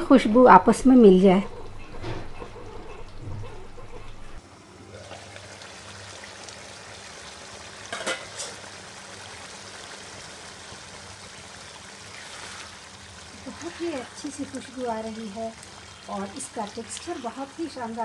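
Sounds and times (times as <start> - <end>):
curry bubbling and sizzling: 4.3 - 18.0.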